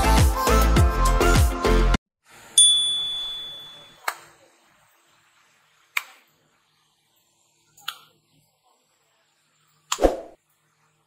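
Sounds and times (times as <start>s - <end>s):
bright ding: 2.6s - 4.0s.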